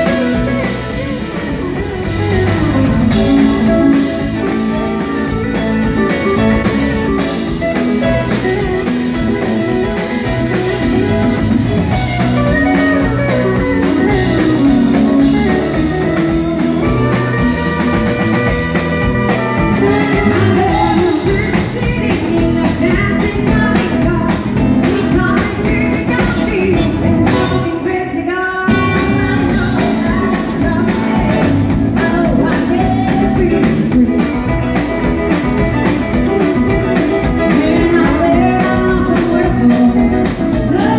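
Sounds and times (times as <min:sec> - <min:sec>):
live country band playing: 0:00.0 - 0:40.9
pedal steel guitar: 0:00.0 - 0:40.9
woman singing: 0:19.0 - 0:35.2, 0:36.0 - 0:40.9.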